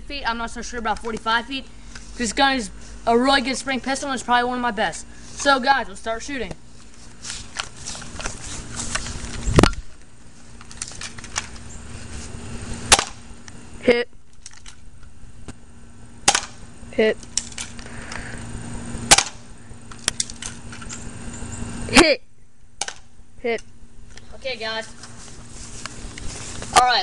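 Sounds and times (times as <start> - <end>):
airsoft pistol shots: 12.9 - 13.2, 16.2 - 16.6, 19.1 - 19.5.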